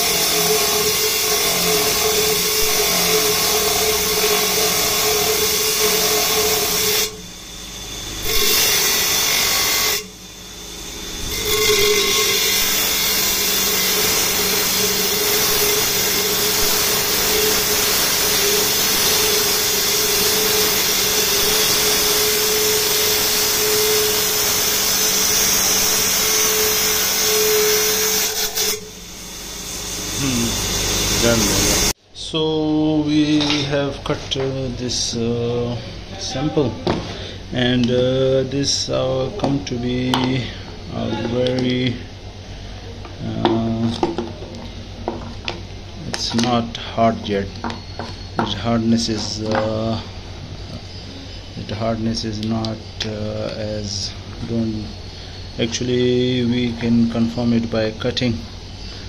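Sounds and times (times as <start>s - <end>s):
stone saw grinding: 0.0s - 32.0s.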